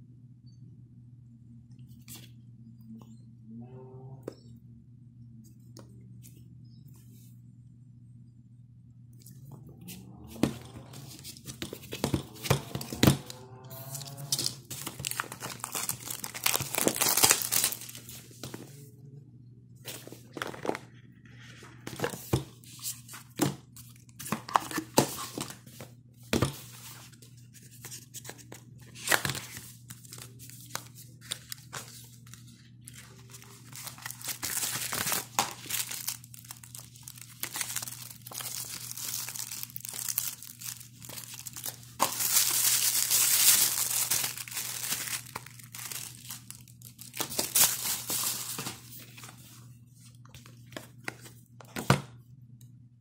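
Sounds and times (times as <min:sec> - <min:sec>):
plastic wrap crinkling: 0:10.8 - 0:18.5, 0:28.9 - 0:49.4.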